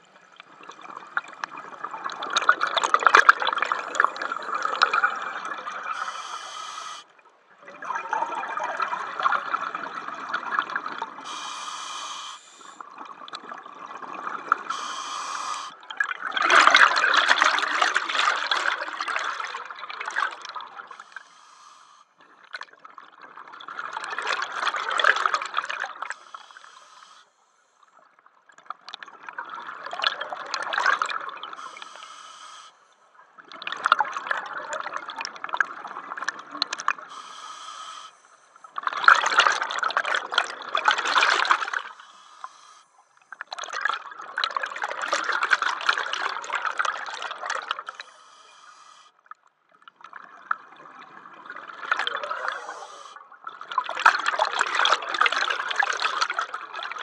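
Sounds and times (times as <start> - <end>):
hissing regulator inhales: 5.9 - 7.1, 11.2 - 12.8, 14.7 - 15.8, 20.9 - 22.2, 26.1 - 27.8, 31.6 - 32.9, 37.1 - 38.6, 41.7 - 43.3, 47.9 - 49.2, 52.4 - 53.2.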